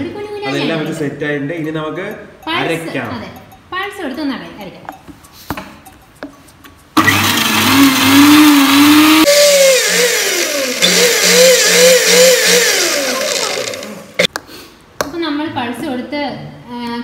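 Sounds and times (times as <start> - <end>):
mixer grinder motor whining: 7.0 - 14.3.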